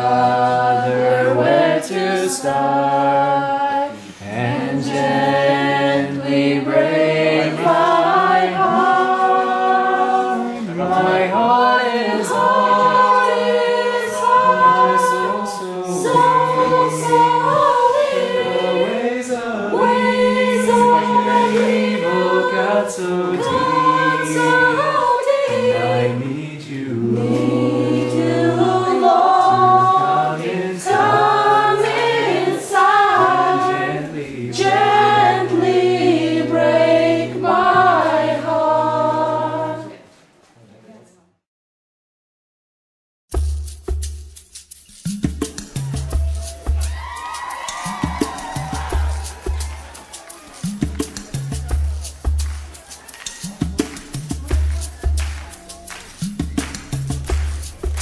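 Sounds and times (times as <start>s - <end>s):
choir singing in harmony: 0.0s - 40.1s.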